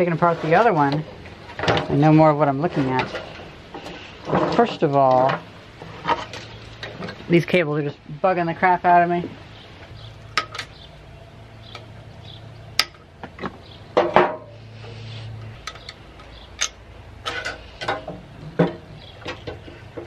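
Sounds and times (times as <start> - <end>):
low steady hum: 0.0 - 20.0
metallic clicks and rattles: 15.6 - 20.0.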